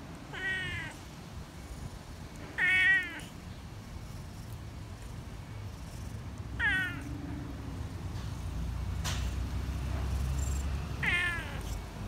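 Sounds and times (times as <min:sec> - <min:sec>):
cat meowing: 0:00.3 - 0:01.0, 0:02.5 - 0:03.4, 0:06.6 - 0:07.2, 0:11.0 - 0:11.8.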